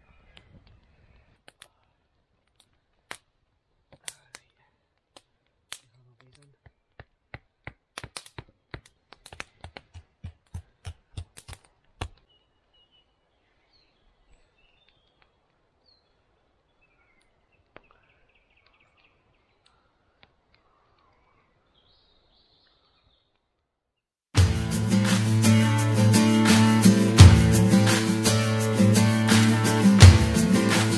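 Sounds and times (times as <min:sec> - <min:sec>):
faint bird chirps: 0:12.2 - 0:23.5.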